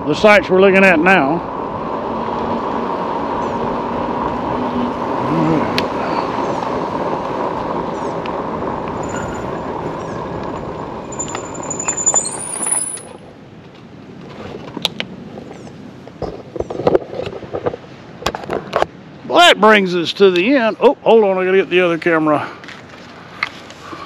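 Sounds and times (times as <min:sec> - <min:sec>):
tyre and road noise: 0:00.0 - 0:24.0
electric scooter motor whine: 0:01.4 - 0:12.0.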